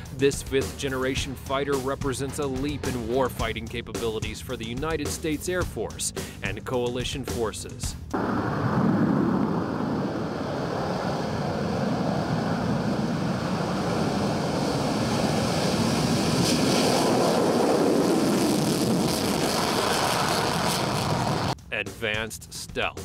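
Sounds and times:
jet engines roaring on takeoff: 8.1 - 21.6.

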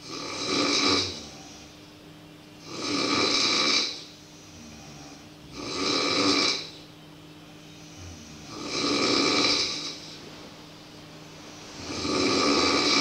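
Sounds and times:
person snoring loudly: 0.0 - 1.7, 2.6 - 6.8, 7.8 - 10.2, 11.7 - 13.0.

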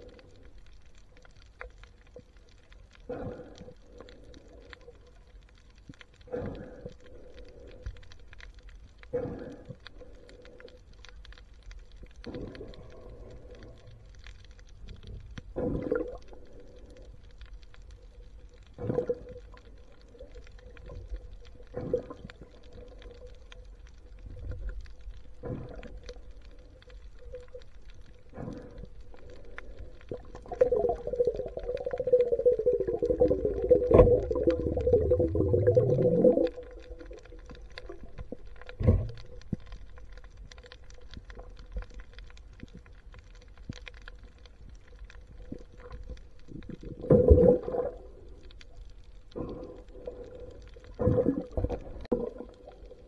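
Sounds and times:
faint underwater hum: 0.0 - 53.0.

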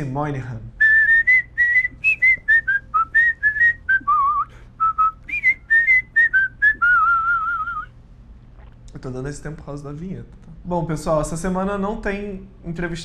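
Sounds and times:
whistled tune: 0.8 - 7.9.

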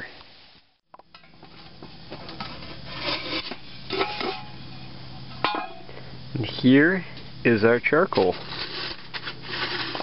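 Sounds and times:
metal can scraping and rubbing: 2.4 - 4.6, 8.2 - 10.0.

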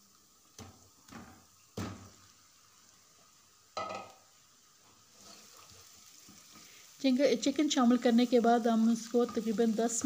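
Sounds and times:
oil sizzling: 0.0 - 10.0
chicken dropping into hot oil: 0.6 - 2.2, 3.8 - 4.2.

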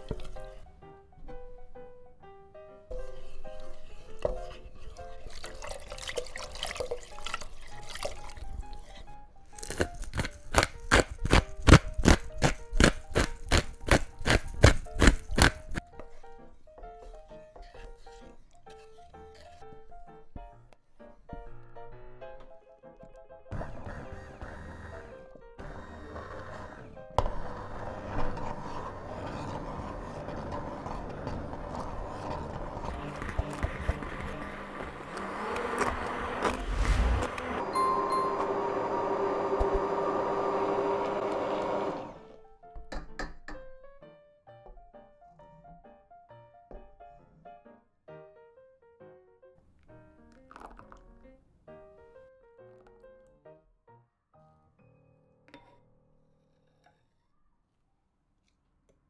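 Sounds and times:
wooden spoon stirring: 0.0 - 0.7, 2.9 - 20.4, 23.6 - 38.3
water pouring into pot: 5.0 - 8.7
immersion blender blending soup: 23.5 - 42.4.

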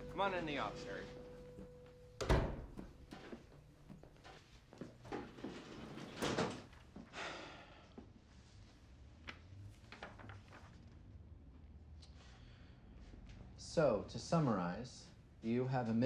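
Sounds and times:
paper pages being turned: 9.3 - 11.0.

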